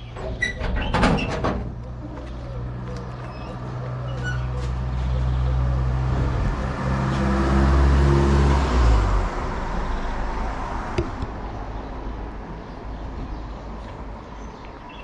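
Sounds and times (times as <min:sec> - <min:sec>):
car engine passing: 0:01.6 - 0:11.2.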